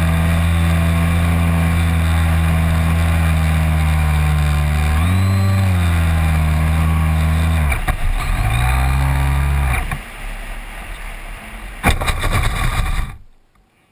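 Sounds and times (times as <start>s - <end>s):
model airplane motor buzzing: 0.0s - 10.0s, 11.9s - 13.3s
sharp knocks: 11.8s - 13.3s.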